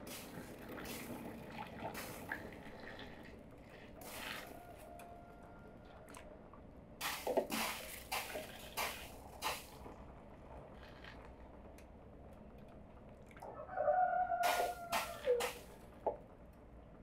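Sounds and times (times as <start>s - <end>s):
juice splashing into bottle: 7.0s - 9.9s.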